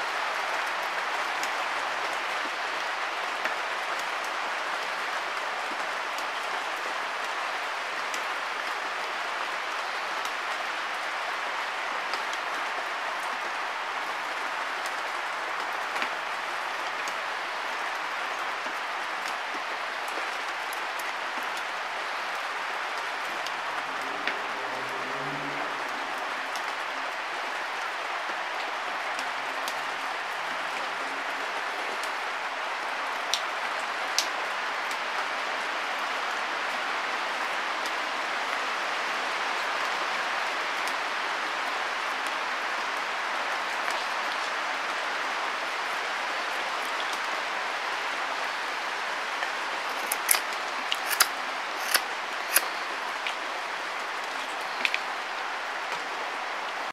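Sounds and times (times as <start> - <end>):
knife shaving wood: 49.9 - 52.7.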